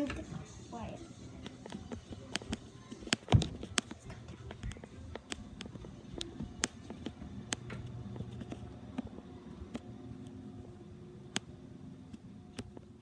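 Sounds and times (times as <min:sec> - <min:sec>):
footsteps on carpeted stairs: 0:01.4 - 0:09.2.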